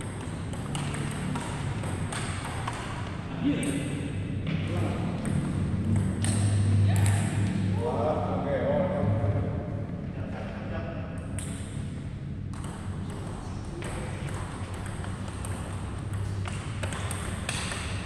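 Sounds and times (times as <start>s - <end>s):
table tennis ball clicks: 0.0s - 3.8s, 5.2s - 7.4s, 12.5s - 18.0s.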